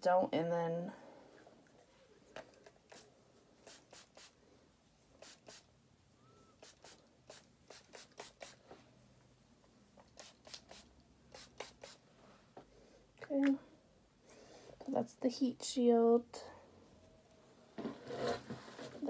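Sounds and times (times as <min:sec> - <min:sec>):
spray bottle spritzes: 0:02.9 - 0:04.4, 0:05.2 - 0:05.7, 0:06.6 - 0:08.6, 0:10.0 - 0:12.0.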